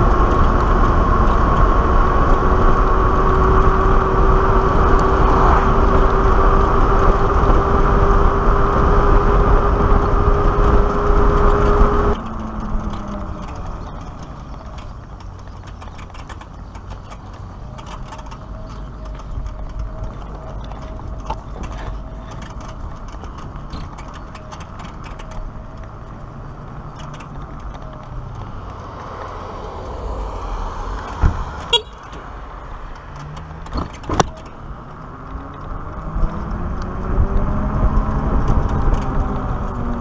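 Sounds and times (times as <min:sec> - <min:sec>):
wind noise: 0:00.0 - 0:40.0
tyre rumble: 0:10.2 - 0:40.0.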